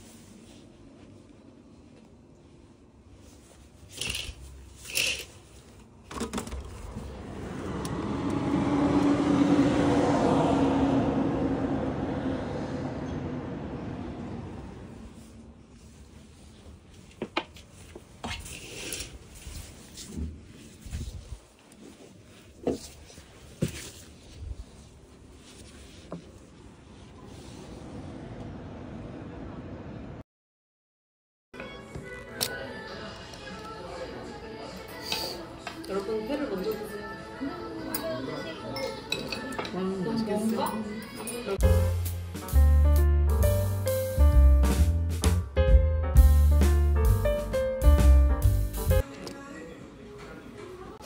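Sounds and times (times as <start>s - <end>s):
curtain swishing: 3.2s - 5.8s
street traffic: 6.2s - 17.7s, 25.6s - 30.2s
passing vehicle engine hum: 6.7s - 15.7s.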